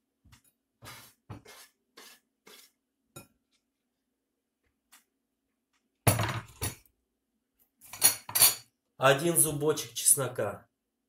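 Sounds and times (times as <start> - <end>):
wooden board scraping glass bowl: 0.8 - 2.8.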